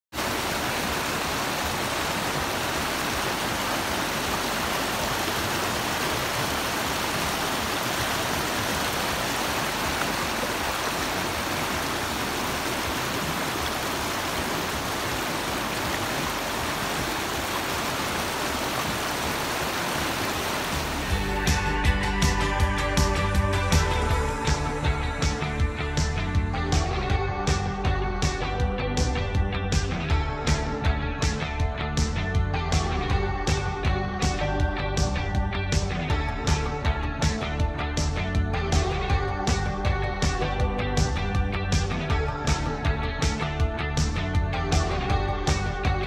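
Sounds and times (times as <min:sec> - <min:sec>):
water rushing over rocks: 0:00.1 - 0:21.3.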